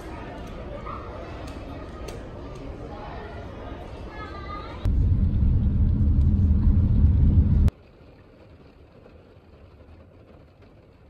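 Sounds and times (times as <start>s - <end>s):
car cabin rumble: 4.9s - 7.7s.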